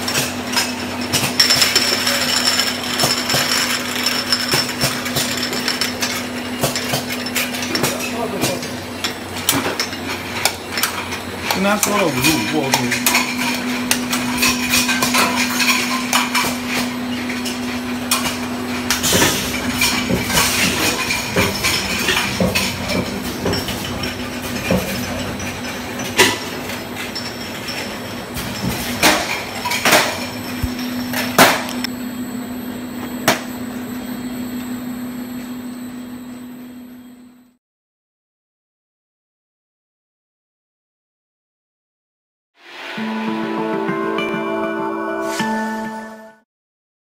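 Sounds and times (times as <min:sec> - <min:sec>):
glass jars clinking on conveyor: 0:00.0 - 0:31.9.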